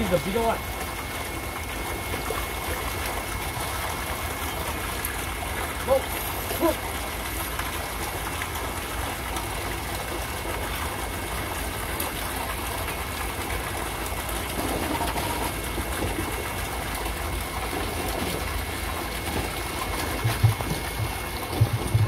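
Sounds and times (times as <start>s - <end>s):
running water: 0.0s - 22.0s.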